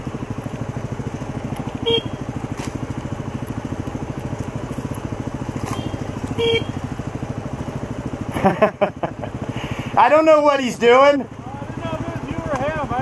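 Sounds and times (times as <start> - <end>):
motorcycle engine running low revs: 0.0 - 13.0
motorcycle horn beep: 1.7 - 2.4, 5.6 - 7.0.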